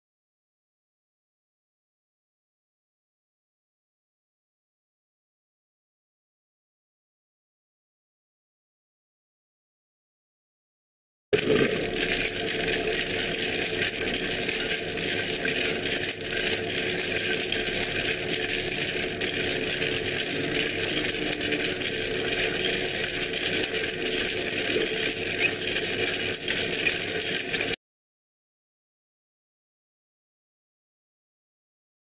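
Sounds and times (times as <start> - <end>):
metal rod rattling: 11.4 - 27.8
small motor hum: 11.4 - 27.8.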